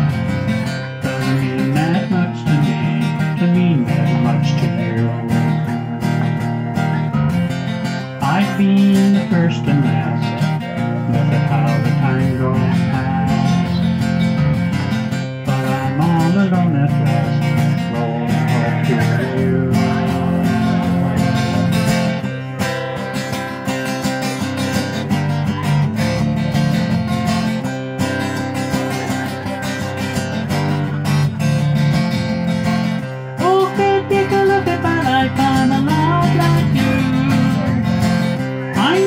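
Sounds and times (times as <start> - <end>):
acoustic guitar strumming: 0.0 - 39.0.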